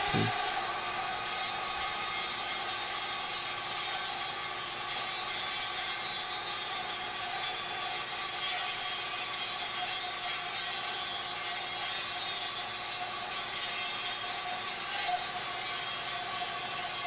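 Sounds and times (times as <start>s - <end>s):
bandsaw cutting wood: 0.0s - 1.8s
dust collector running: 0.0s - 4.9s.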